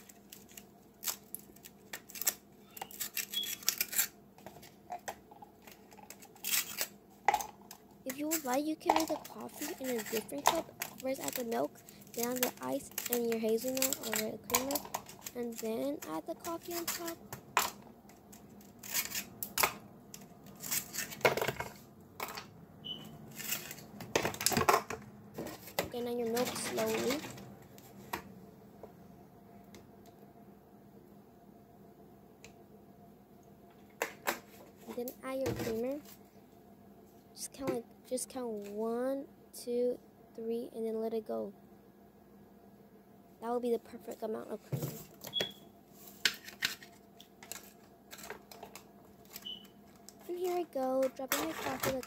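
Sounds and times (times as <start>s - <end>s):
plastic ice tray crackling: 8.1s - 17.2s, 47.4s - 52.0s.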